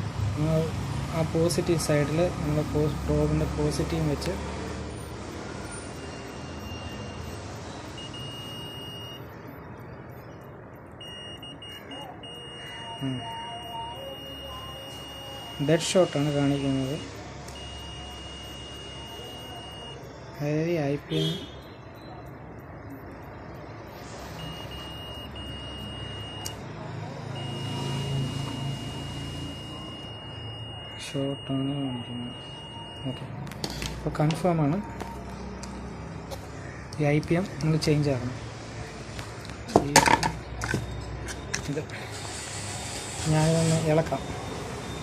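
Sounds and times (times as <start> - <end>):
multimeter high beep: 1.4 - 33.4, 43.2 - 45.0.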